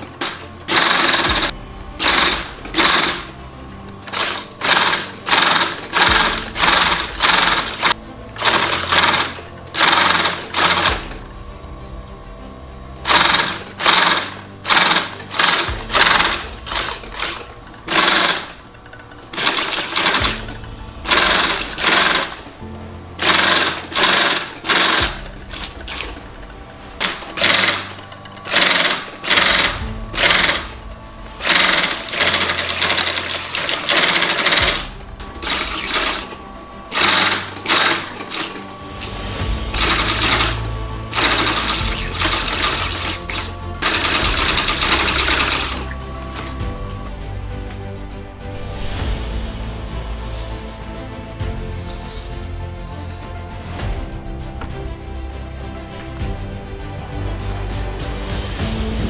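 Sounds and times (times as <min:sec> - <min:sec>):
industrial sewing machine stitching: 0:00.0 - 0:03.4, 0:04.0 - 0:11.3, 0:13.0 - 0:22.6, 0:23.2 - 0:46.6.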